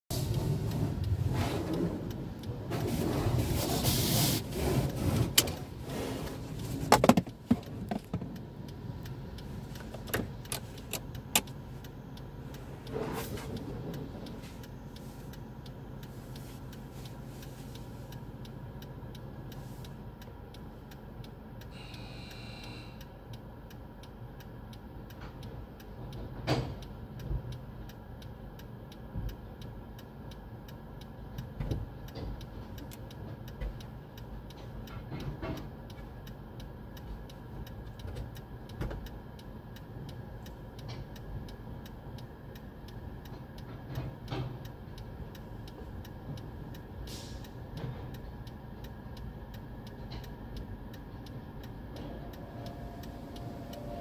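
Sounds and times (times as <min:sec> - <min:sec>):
car idling: 0:00.1 - 0:22.7
low hum of wash machinery: 0:00.1 - 0:54.0.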